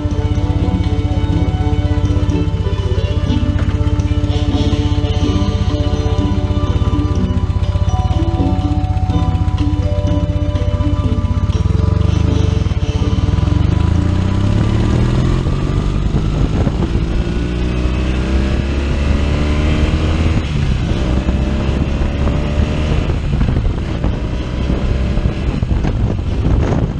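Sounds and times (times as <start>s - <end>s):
motorcycle engine accelerating: 0.0s - 26.9s.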